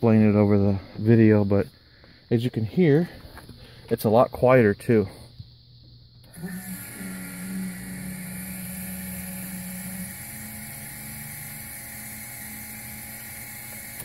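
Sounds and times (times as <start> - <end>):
electric fuel pump whirring: 5.8 - 14.0.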